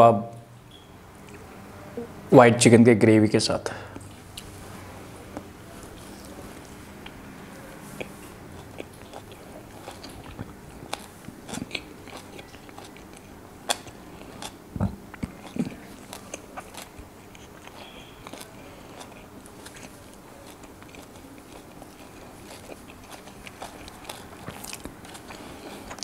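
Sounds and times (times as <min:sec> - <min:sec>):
mouth chewing with wet smacks: 0:07.9 - 0:26.0.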